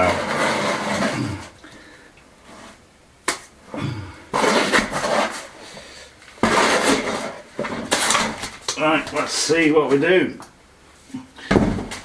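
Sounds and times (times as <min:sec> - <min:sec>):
mortar scraped from plastic bucket: 0:00.0 - 0:01.6, 0:04.3 - 0:05.6, 0:06.4 - 0:08.5.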